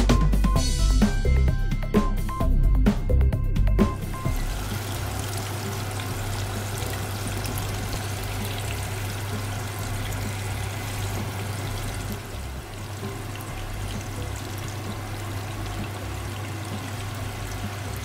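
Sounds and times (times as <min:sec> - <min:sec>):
water pouring from kettle: 0:04.2 - 0:18.0.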